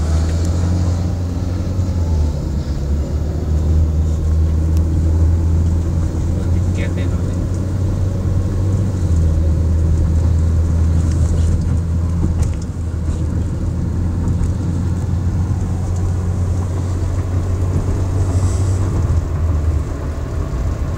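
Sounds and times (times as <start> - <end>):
car cabin engine and road rumble: 0.0 - 20.9.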